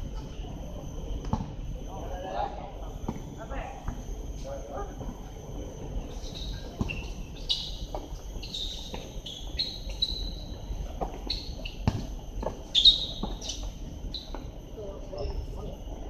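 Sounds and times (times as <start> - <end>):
shoe squeaks and chirps: 6.1 - 10.6, 11.2 - 11.9, 12.7 - 14.4.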